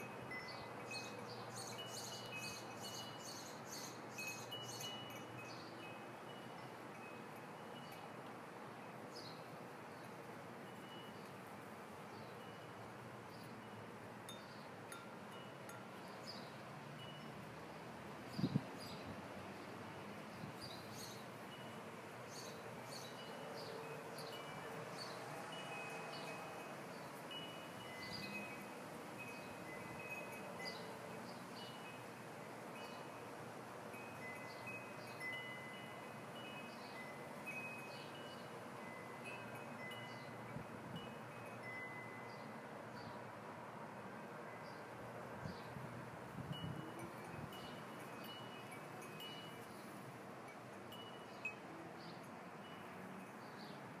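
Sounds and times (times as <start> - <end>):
wind chimes tinkling: 0.0 - 8.2, 9.0 - 19.0, 20.6 - 42.6, 46.3 - 53.8
chimes tinkling: 4.1 - 8.1, 34.0 - 42.4, 46.6 - 50.0, 50.9 - 51.7.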